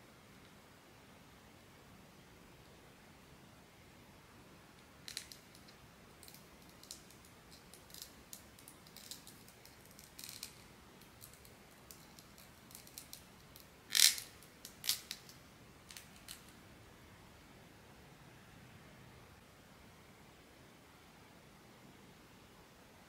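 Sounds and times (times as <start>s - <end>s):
light clicks and rustles of packaging: 5.1s - 16.6s.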